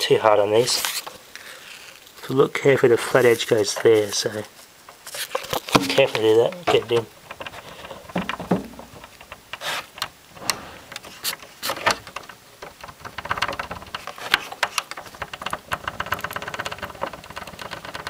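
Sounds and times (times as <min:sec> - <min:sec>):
radio knob clicking and scraping: 0:03.7 - 0:18.0
fast run of small ticks: 0:08.8 - 0:18.0.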